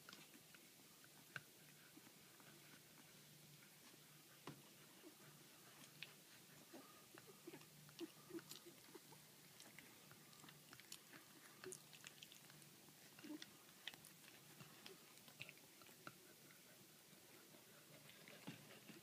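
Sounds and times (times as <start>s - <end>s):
faint low hum: 0.0s - 19.0s
puppies mouth smacks and clicks: 7.1s - 16.6s.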